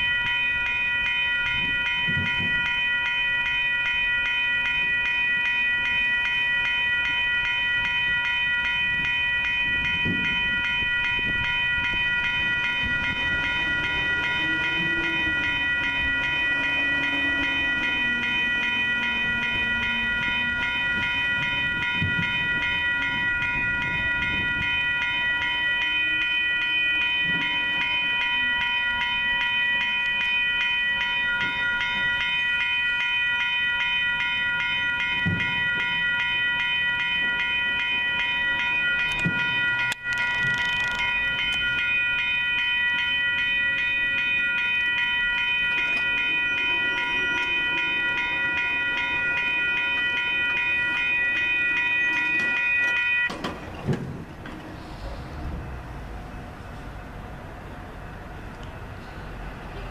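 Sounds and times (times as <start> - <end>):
crossing warning bell ringing: 0.0 - 59.9
low traffic rumble: 7.9 - 30.4, 35.8 - 59.9.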